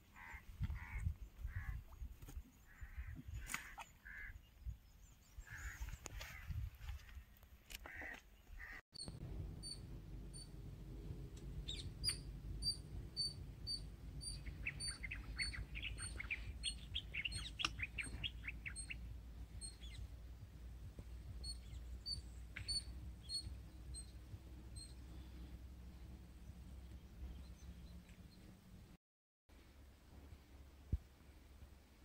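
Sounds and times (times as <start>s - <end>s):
descending bird chirps: 9.0s - 10.5s, 11.6s - 19.0s
low steady rumble: 9.0s - 17.6s, 18.3s - 29.0s.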